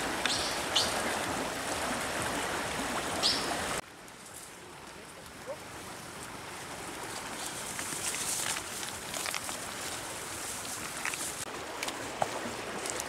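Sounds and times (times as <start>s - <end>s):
shrub leaves and branches rustling: 3.2s - 13.0s.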